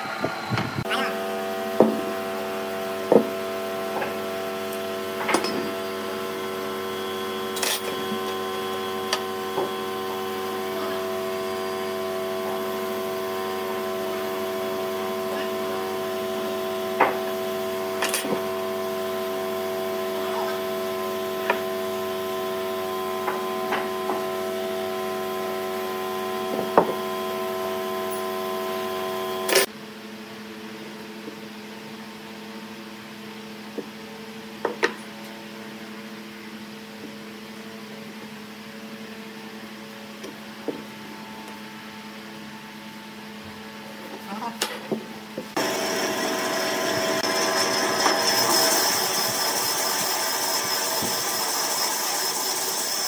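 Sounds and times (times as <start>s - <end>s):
electrical hum: 0.0s - 29.7s.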